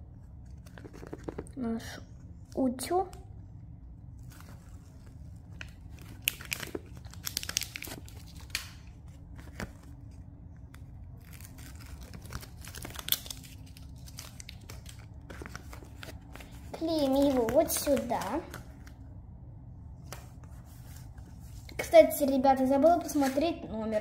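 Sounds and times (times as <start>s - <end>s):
paper rustling and crinkling: 0.4s - 1.6s, 4.2s - 19.0s, 23.0s - 24.0s.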